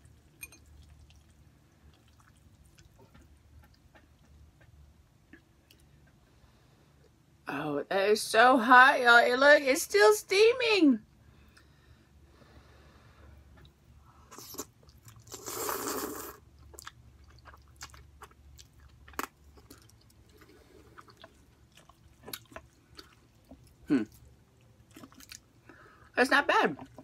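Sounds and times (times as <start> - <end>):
quiet chewing: 0.0 - 6.3, 13.4 - 26.0.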